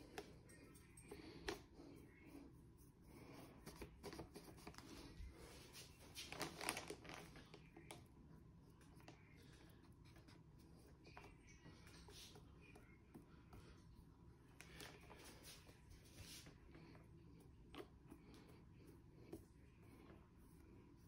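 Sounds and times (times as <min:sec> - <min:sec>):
paintbrush brushing: 0:00.0 - 0:06.3, 0:08.3 - 0:21.0
plastic film rustling: 0:05.8 - 0:07.6.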